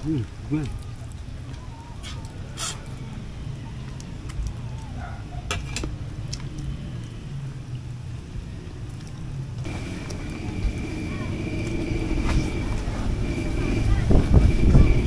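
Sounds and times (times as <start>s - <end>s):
steady low rumble: 5.9s - 15.0s.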